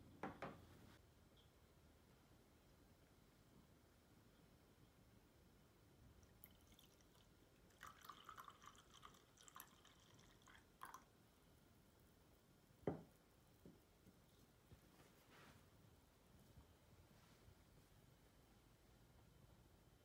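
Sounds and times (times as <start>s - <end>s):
coffee trickling into mug: 6.2s - 11.1s.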